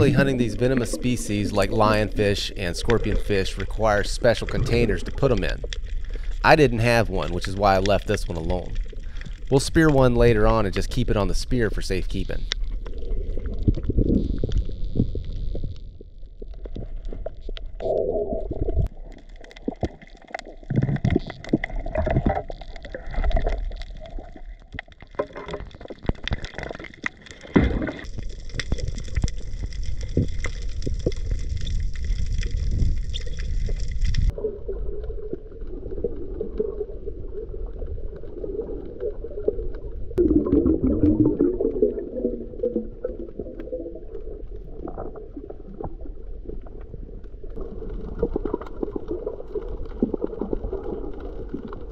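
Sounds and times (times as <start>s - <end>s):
underwater rumble and gurgling: 0.0s - 51.9s.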